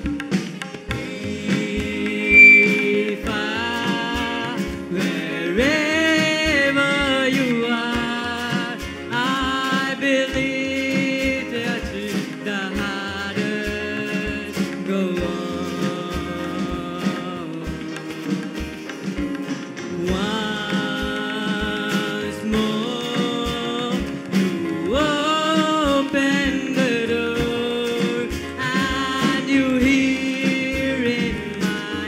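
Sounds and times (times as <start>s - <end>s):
sliding melody possibly sung: 2.0s - 3.6s
live band music: 2.1s - 5.3s, 11.2s - 32.0s.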